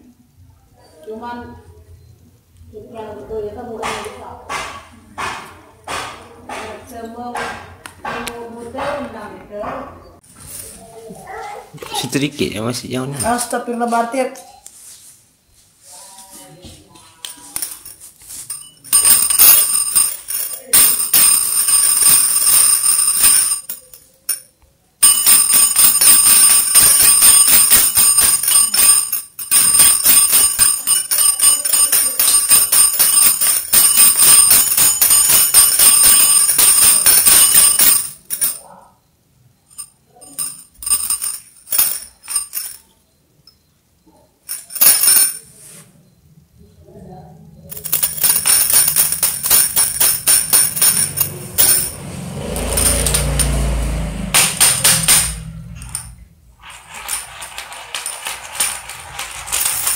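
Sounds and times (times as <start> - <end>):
small jingle bells shaken: 17.2 - 24.4, 25.0 - 38.7, 39.7 - 42.9, 44.5 - 45.5, 47.6 - 59.9.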